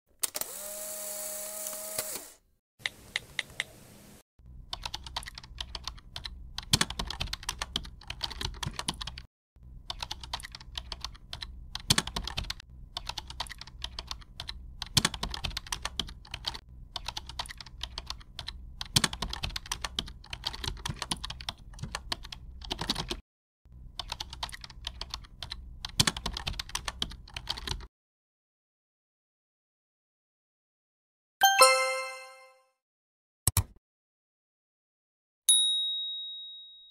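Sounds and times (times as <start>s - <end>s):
computer keyboard typing: 4.7s - 23.2s, 23.9s - 27.9s.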